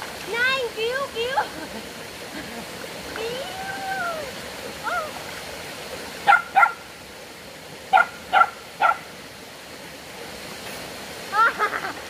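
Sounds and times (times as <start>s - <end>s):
dog barking: 6.3s - 6.8s, 7.9s - 9.1s.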